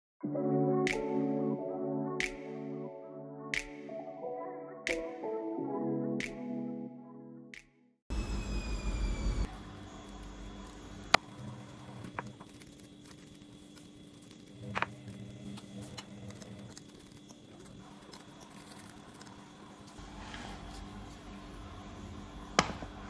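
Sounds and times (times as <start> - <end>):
fork mashing banana squishing: 10.2 - 20.8.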